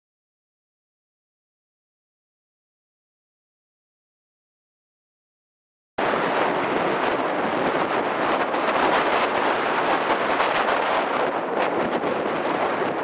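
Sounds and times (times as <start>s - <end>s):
wind buffeting microphone: 6.0s - 13.0s.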